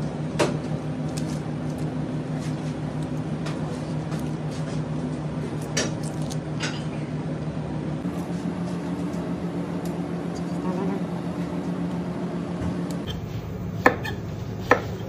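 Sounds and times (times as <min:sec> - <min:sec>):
kitchen equipment humming: 0:00.0 - 0:15.0.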